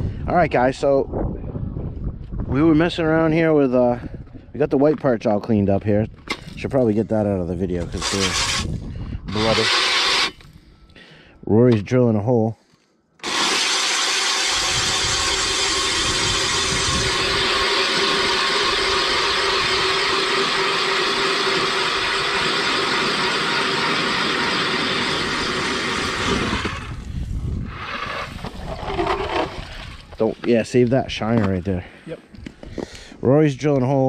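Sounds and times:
power ice auger drilling: 0:07.8 - 0:08.7, 0:09.3 - 0:10.4, 0:13.2 - 0:27.1, 0:27.7 - 0:30.0.

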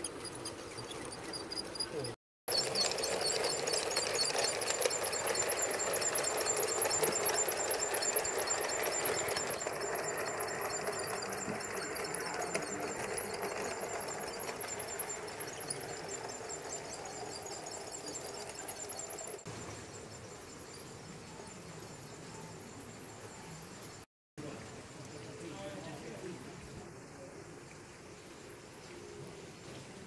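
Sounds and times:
model train motor whirring: 0:00.0 - 0:19.5
wheels running on rails: 0:00.0 - 0:24.0.

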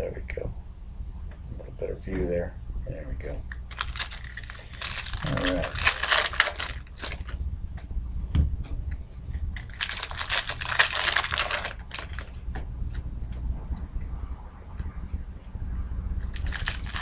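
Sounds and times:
foil wrapper crinkling and tearing: 0:03.7 - 0:07.4, 0:09.6 - 0:12.3, 0:16.3 - 0:17.0.

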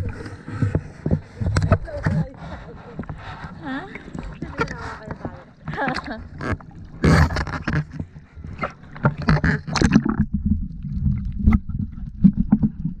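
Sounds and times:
muffled underwater rumble: 0:00.0 - 0:13.0
water splashing and sloshing: 0:00.0 - 0:13.0
sharp underwater clicks: 0:04.0 - 0:12.8.

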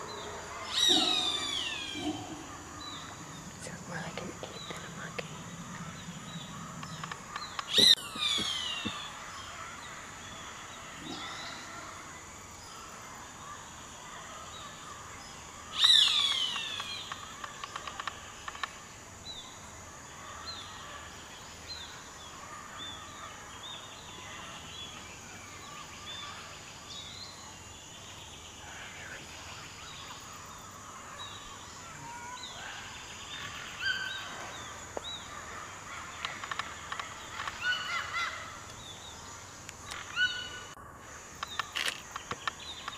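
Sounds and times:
high insect drone: 0:00.0 - 0:42.9
harsh bird calls falling in pitch: 0:00.6 - 0:03.2, 0:04.7 - 0:12.1
small bird chirps: 0:06.0 - 0:09.2, 0:15.8 - 0:18.8.

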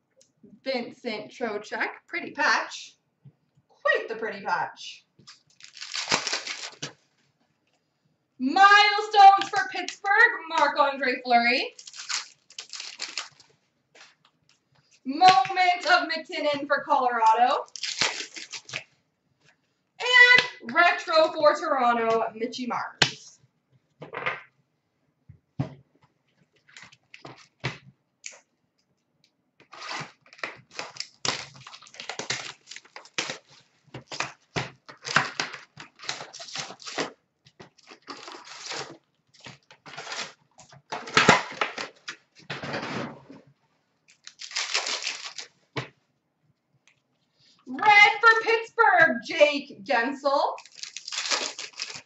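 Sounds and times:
card wrappers tearing and crinkling: 0:05.3 - 0:07.0, 0:11.7 - 0:13.5, 0:17.6 - 0:18.9, 0:29.7 - 0:42.2, 0:44.1 - 0:45.6, 0:50.6 - 0:52.0.

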